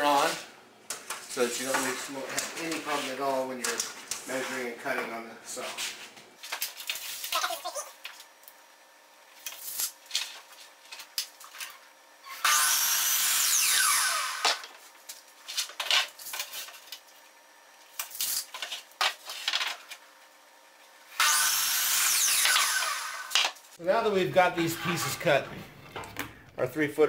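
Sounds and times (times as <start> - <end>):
miter saw cutting wood: 12.3 - 14.7, 21.2 - 23.5.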